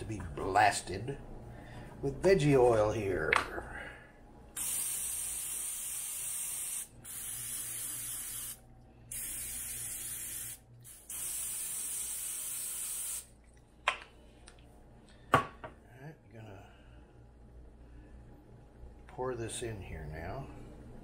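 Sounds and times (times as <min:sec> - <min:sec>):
cooking spray can hissing: 0:04.6 - 0:13.3.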